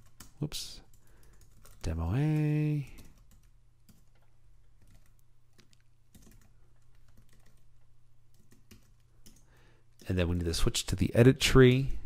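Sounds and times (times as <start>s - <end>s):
typing on computer keyboard: 0.0s - 7.7s, 8.3s - 10.6s.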